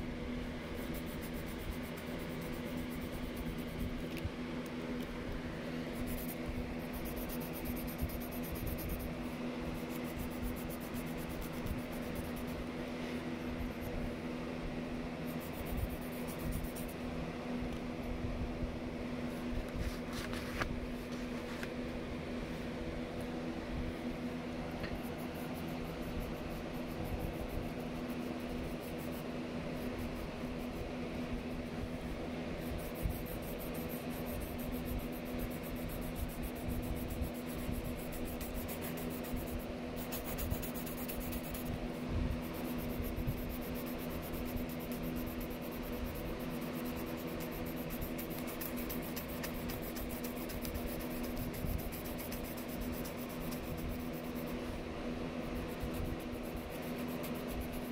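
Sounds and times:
mechanical hum: 0.0s - 57.9s
pencil strokes on paper: 0.7s - 4.2s, 5.8s - 14.0s, 15.2s - 17.0s, 32.6s - 57.9s.

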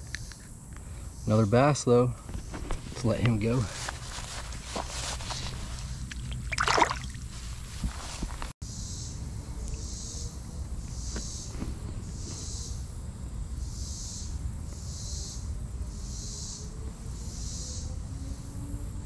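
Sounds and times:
insect buzzing pulse: 8.7s - 19.0s.

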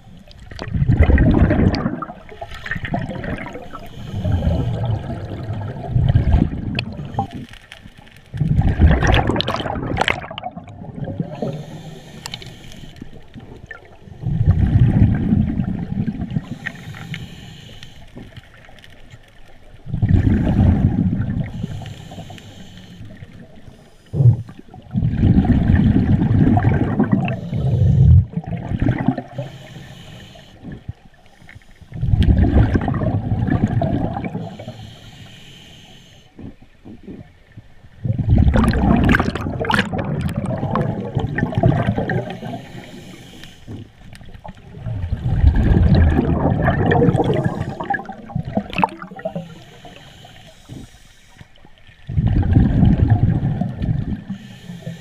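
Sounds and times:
exhaled bubbles gurgling: 0.0s - 17.5s, 19.6s - 31.2s, 31.9s - 35.0s, 36.4s - 51.0s, 51.6s - 55.0s
regulator inhalation hiss: 11.4s - 13.1s, 16.4s - 18.2s, 21.5s - 24.5s, 29.4s - 32.0s, 34.4s - 36.4s, 42.2s - 43.8s, 49.3s - 51.6s, 54.3s - 55.0s.

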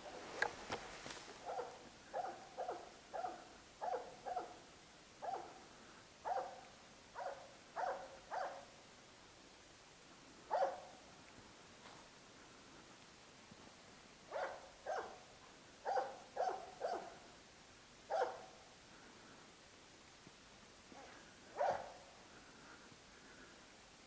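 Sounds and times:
dog barking: 1.4s - 4.6s, 5.2s - 5.6s, 6.2s - 6.6s, 7.2s - 8.7s, 10.5s - 10.9s, 14.3s - 15.2s, 15.8s - 17.2s, 18.1s - 18.5s, 21.0s - 22.0s.

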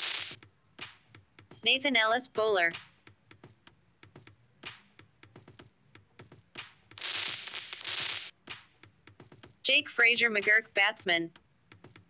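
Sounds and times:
keyboard typing clicks: 8.4s - 9.6s, 11.3s - 12.0s.

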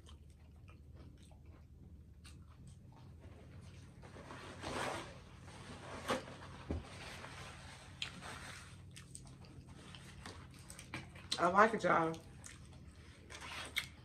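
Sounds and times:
close chewing of crunchy food: 0.0s - 4.0s, 7.8s - 14.0s.

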